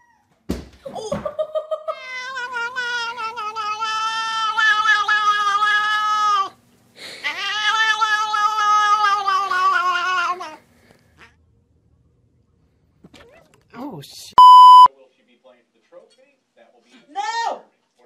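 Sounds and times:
cat meowing: 0:01.9 - 0:06.6, 0:07.2 - 0:10.6.

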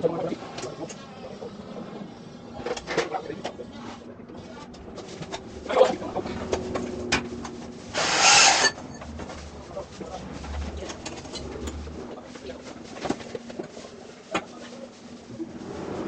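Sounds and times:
saw blade rasping through metal tube: 0:08.0 - 0:08.8.

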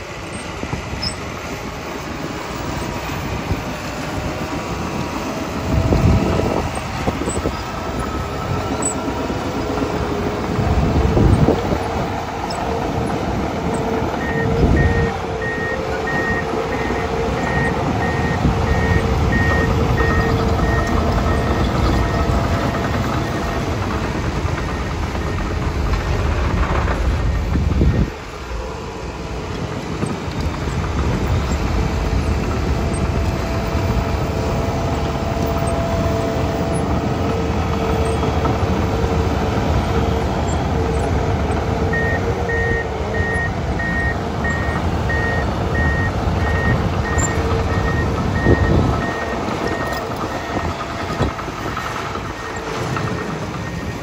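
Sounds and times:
bulldozer diesel engine running: 0:00.0 - 0:54.0
backup alarm beeping: 0:13.6 - 0:25.7, 0:41.9 - 0:54.0.

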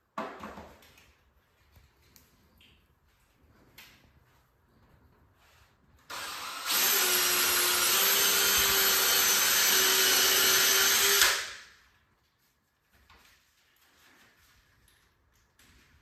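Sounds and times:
drill driver whining: 0:06.1 - 0:11.6.

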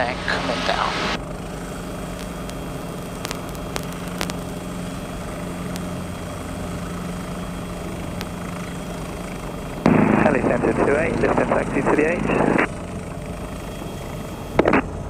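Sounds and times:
helicopter engine and rotors: 0:00.0 - 0:15.0
faint clicks: 0:02.1 - 0:04.4, 0:08.2 - 0:08.7.

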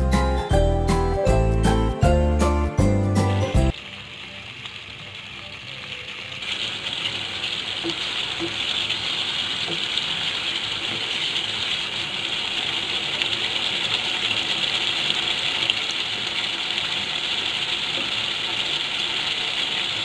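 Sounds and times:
gravy sizzling in oil: 0:03.1 - 0:20.0.

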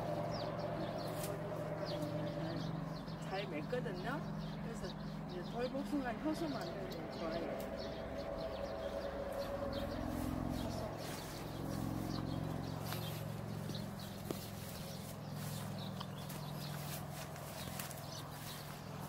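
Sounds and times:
low hum: 0:00.0 - 0:19.0
footsteps swishing through grass: 0:00.8 - 0:02.2, 0:09.2 - 0:19.0.

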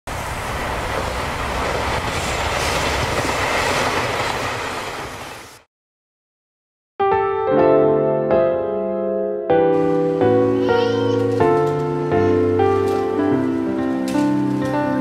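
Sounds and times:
model train running on track: 0:00.1 - 0:05.5.

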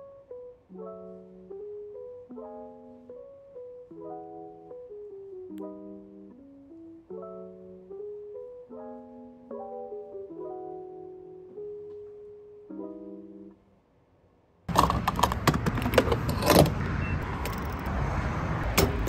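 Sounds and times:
soft piano music: 0:00.0 - 0:13.8.

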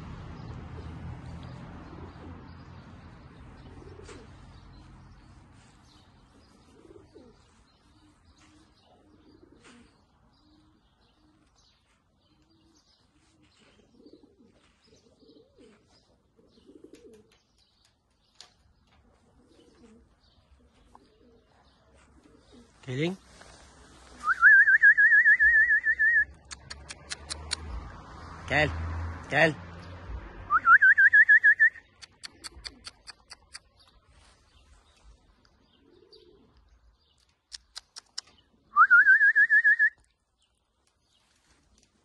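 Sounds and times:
small birds chirping faintly: 0:00.8 - 0:24.2
pigeons cooing: 0:01.6 - 0:22.8, 0:31.8 - 0:38.8.

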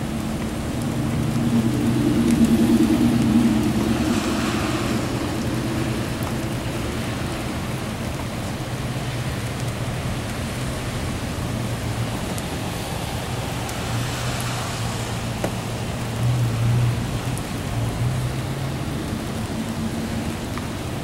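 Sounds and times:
thunder rumble: 0:00.0 - 0:08.8
steady rain: 0:00.0 - 0:21.0.

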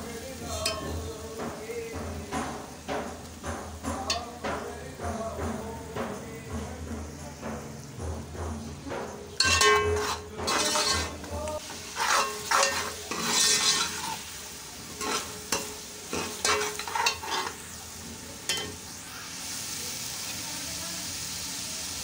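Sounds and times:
oil sizzling: 0:00.0 - 0:06.4, 0:08.9 - 0:22.0
steel spoon scraping metal pot: 0:09.4 - 0:14.3, 0:15.0 - 0:17.8.

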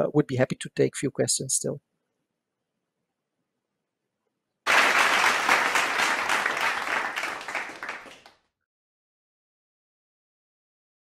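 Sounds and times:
crowd applauding: 0:04.7 - 0:08.4.

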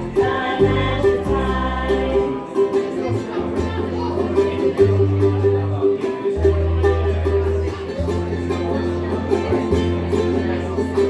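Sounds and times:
low bass notes: 0:00.0 - 0:02.4
people singing: 0:00.0 - 0:04.8
ukuleles strumming: 0:00.0 - 0:11.0.

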